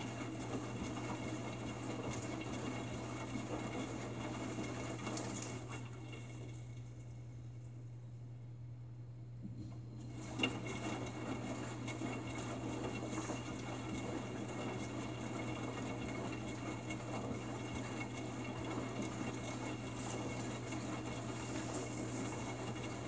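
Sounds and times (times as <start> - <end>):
low steady hum: 5.4 - 10.5.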